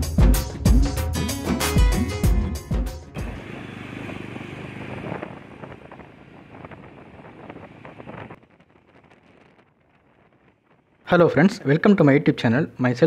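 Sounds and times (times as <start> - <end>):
motorcycle engine riding: 3.0 - 10.8
road noise: 3.0 - 11.0
wind buffeting microphone: 3.2 - 11.9.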